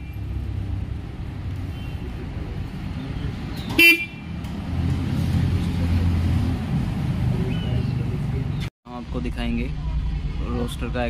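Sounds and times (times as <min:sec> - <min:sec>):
motorcycle horn toot: 0:03.7 - 0:04.4.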